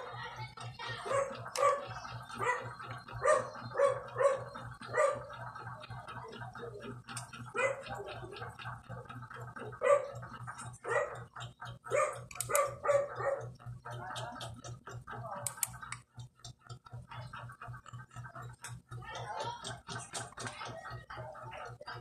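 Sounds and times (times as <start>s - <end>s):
dog barking: 1.0s - 5.4s, 7.5s - 8.2s, 9.6s - 13.6s.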